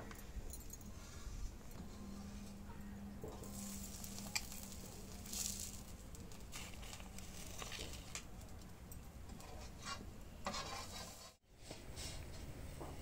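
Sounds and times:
faint sizzle: 1.9s - 8.2s
utensils scraping on metal griddle: 3.3s - 8.2s, 9.3s - 11.4s.

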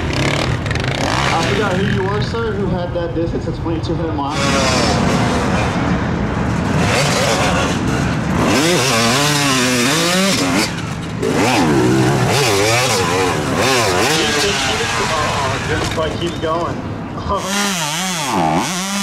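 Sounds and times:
motorcycle engine revving hard: 0.0s - 2.0s, 4.3s - 5.8s, 6.6s - 16.0s, 17.3s - 19.0s.

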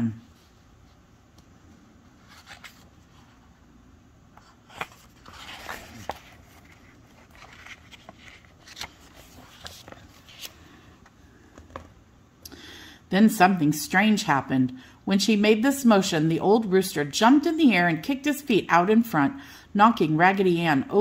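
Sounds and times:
book pages turning: 2.1s - 3.6s, 4.3s - 12.0s.

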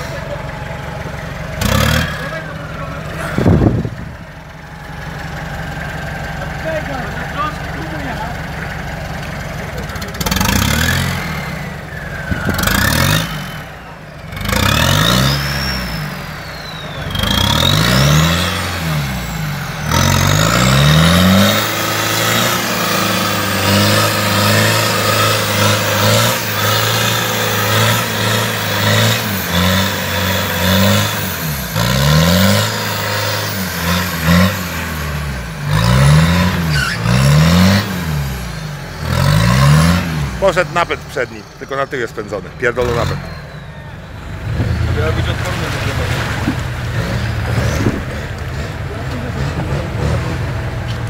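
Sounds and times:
truck engine revving: 0.0s - 51.0s
wheels spinning in mud: 9.5s - 34.9s, 38.8s - 51.0s.

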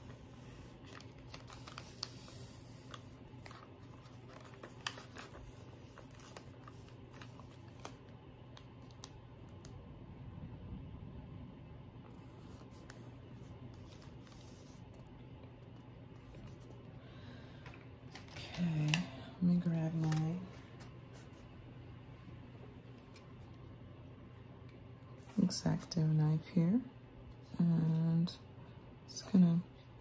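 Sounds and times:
tape rustling on paper: 0.0s - 9.8s, 12.1s - 16.8s, 19.8s - 21.5s.

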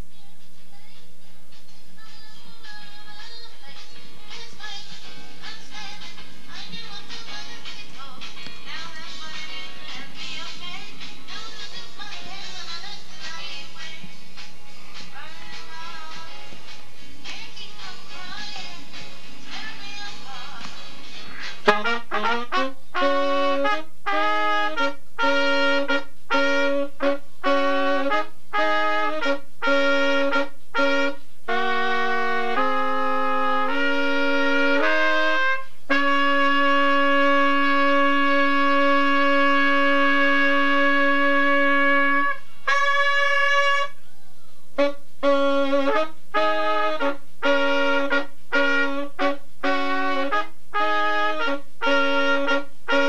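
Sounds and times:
trumpet playing: 21.3s - 44.0s, 44.8s - 53.0s.

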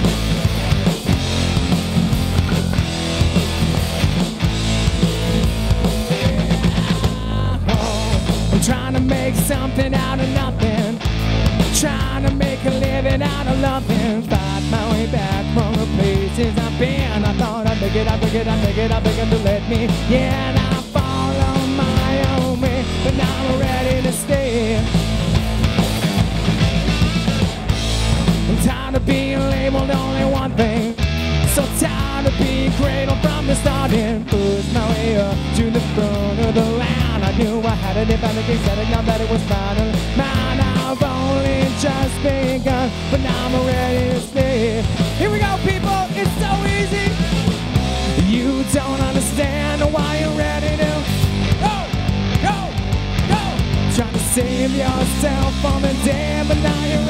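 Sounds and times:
bass guitar: 0.0s - 57.0s
drum kit beat: 0.0s - 57.0s
electric guitars: 0.0s - 57.0s
man singing: 5.8s - 25.0s, 28.4s - 47.4s, 48.0s - 57.0s.

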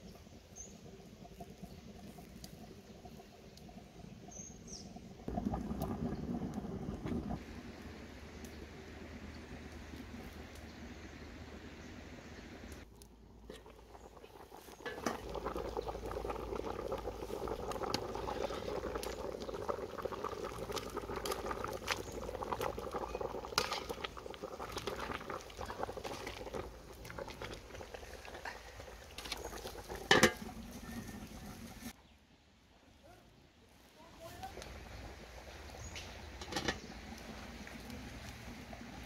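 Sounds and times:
stew bubbling in a pot: 0.0s - 32.0s, 34.2s - 39.0s
ladle scraping a pot: 14.7s - 15.5s, 23.5s - 24.1s, 24.7s - 31.9s, 36.4s - 37.0s
metal lid clank: 30.1s - 30.5s, 36.4s - 36.8s.

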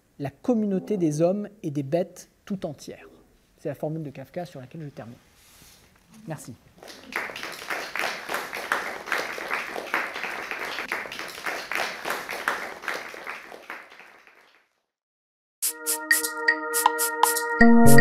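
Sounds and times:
audience applauding: 6.8s - 14.7s
electronic jingle: 15.7s - 18.0s.

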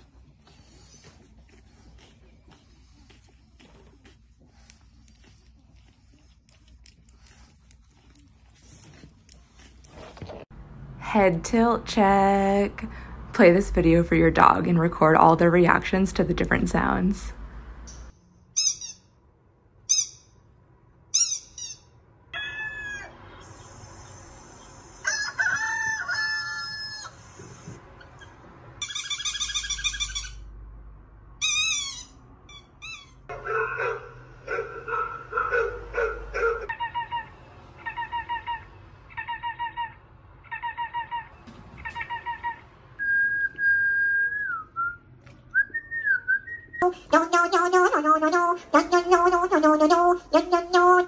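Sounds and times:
rooster crowing: 25.0s - 27.3s
squeaks: 28.0s - 30.5s, 31.4s - 33.3s.

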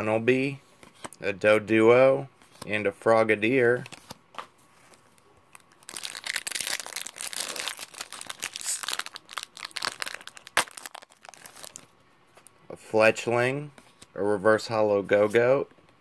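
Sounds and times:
foil wrapper crinkling and tearing: 5.5s - 11.9s.

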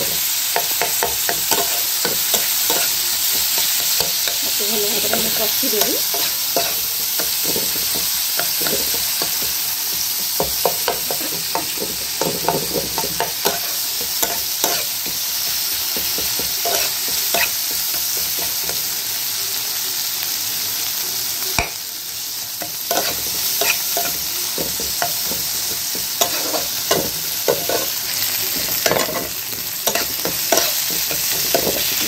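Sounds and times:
spatula scraping pan: 0.0s - 9.5s, 22.9s - 32.0s
onions and tomato sizzling in oil: 0.0s - 32.0s.

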